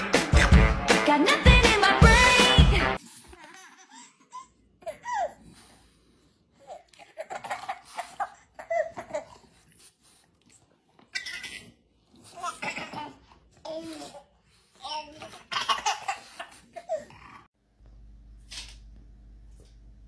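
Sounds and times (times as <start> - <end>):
baby giggling and laughing: 14.9 - 17.1.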